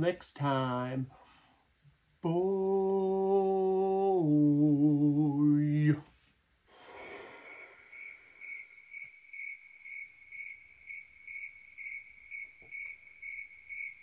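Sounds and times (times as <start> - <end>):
cricket chirping: 7.4 - 14.0.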